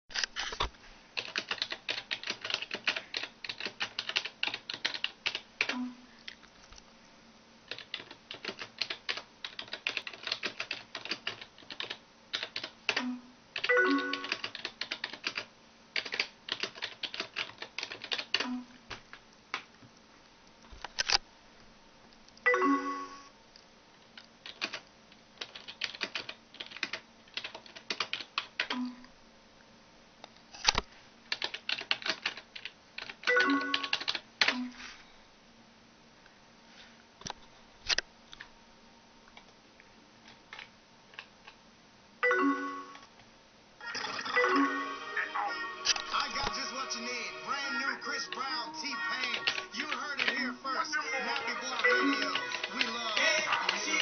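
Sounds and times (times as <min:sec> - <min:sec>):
typing on computer keyboard: 0:01.2 - 0:05.8, 0:07.7 - 0:18.6, 0:24.2 - 0:28.9, 0:31.3 - 0:34.6, 0:49.2 - 0:50.5, 0:51.2 - 0:54.0
electronic chat alert tones: 0:13.0 - 0:14.4, 0:22.5 - 0:23.3, 0:33.3 - 0:33.9, 0:42.2 - 0:43.1, 0:43.9 - 0:54.0.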